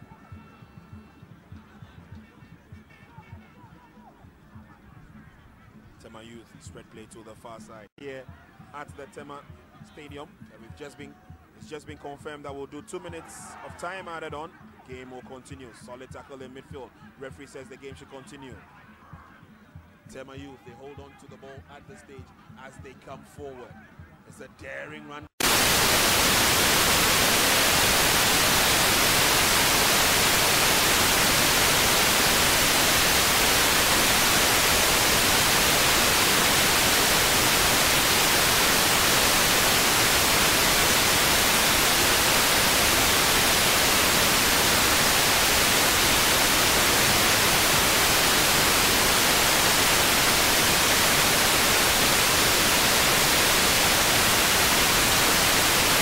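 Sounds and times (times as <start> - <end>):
static hiss: 25.4 - 56.0.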